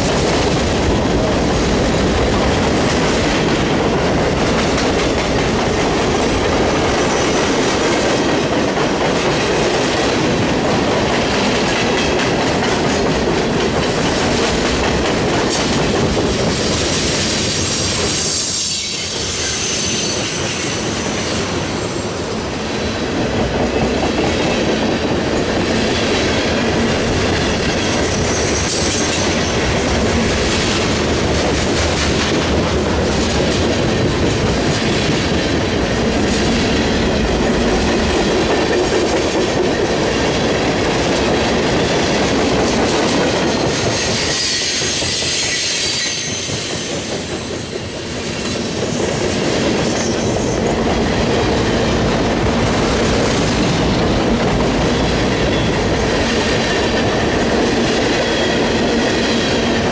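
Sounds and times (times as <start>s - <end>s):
freight train wheels rumbling: 0.0s - 59.9s
high thin wheel squeal: 44.1s - 46.9s.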